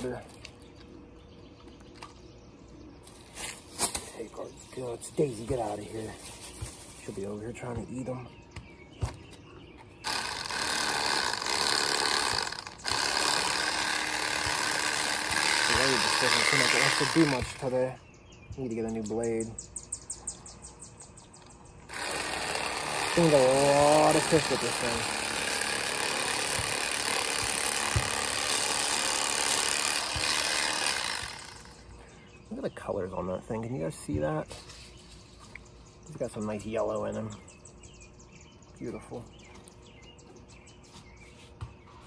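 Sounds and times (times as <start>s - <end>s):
electric knife motor buzzing: 10.0s - 17.7s, 21.9s - 31.8s.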